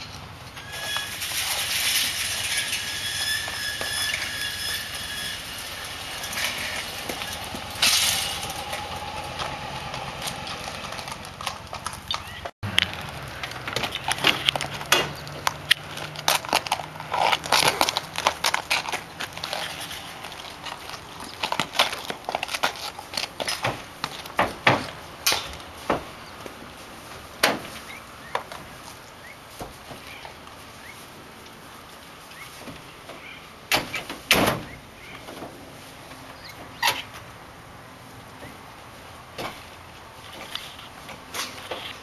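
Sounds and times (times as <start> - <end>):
horses knocking in trailer: 0.6 - 19.7
hooves clopping on pavement: 3.1 - 42.0
motorcycle passing: 5.1 - 18.2.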